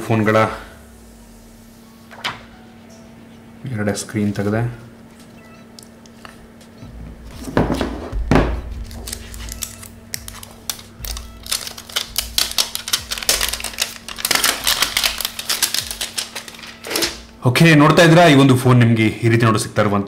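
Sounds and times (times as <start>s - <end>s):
plastic film peeling crackle: 8.8s - 17.3s.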